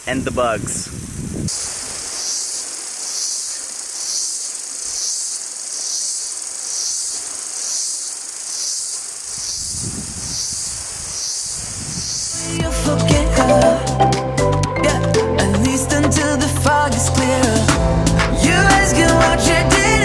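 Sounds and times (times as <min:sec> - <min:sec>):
insects buzzing chorus: 0:00.0 - 0:13.5
ocean wash: 0:01.5 - 0:04.9.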